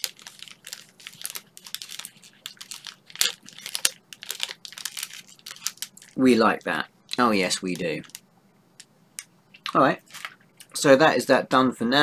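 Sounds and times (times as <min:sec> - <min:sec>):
plastic wrapper crinkling: 0:00.0 - 0:08.2, 0:10.0 - 0:10.8.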